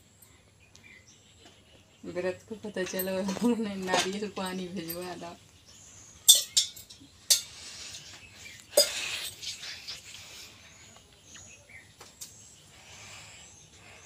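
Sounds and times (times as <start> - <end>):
faint bird chirps: 4.5 - 14.0.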